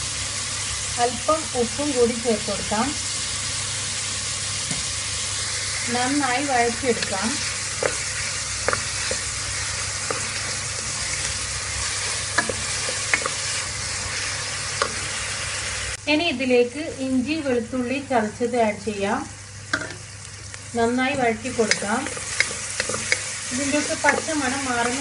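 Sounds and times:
onions sizzling in hot oil: 0.0 - 25.0
wooden spatula tapping pot: 6.9 - 9.4, 12.3 - 13.4, 19.7 - 20.0, 21.2 - 25.0.

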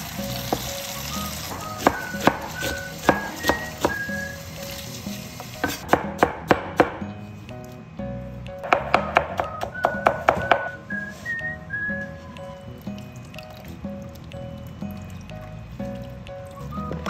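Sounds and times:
tap water running into bowl: 0.0 - 5.8
cleaver chopping on plastic board: 1.5 - 4.0.

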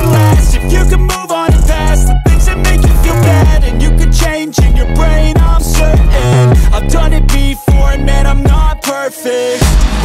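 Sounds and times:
hip-hop music with deep bass: 0.0 - 10.0.

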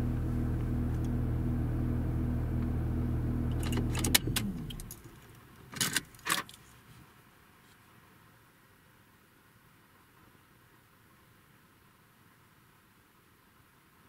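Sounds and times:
engine hum winding down: 0.0 - 5.0
engine switch clicks: 3.5 - 5.0.

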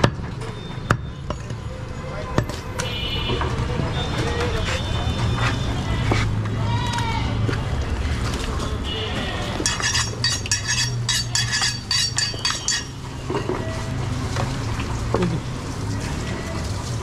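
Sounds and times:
metal basin clinking: 9.6 - 15.0.

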